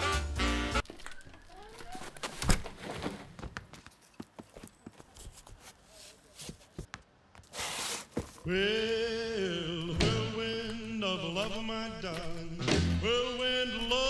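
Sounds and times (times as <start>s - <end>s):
record sleeves flipped through: 0.8s - 3.3s.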